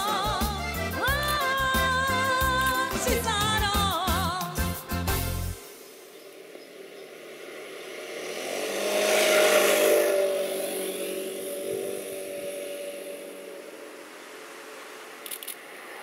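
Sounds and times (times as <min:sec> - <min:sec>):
motor scooter passing by: 0:05.6 - 0:16.0.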